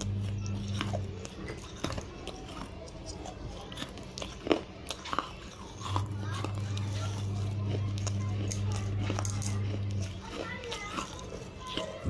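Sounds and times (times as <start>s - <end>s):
mouth chewing and crunching: 0.0s - 12.0s.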